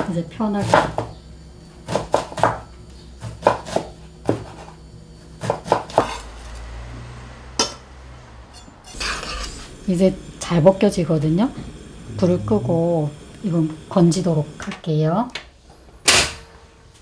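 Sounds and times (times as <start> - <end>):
knife chopping on wooden board: 1.9 - 2.6, 3.2 - 4.6, 5.4 - 6.2
low steady hum: 4.0 - 17.0.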